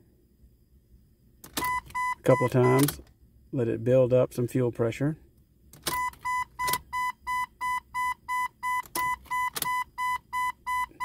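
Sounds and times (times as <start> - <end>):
ignition key clicks: 1.4 - 3.1, 5.7 - 6.9, 8.8 - 9.8
dashboard warning chime beeping: 1.6 - 3.0, 5.9 - 11.0.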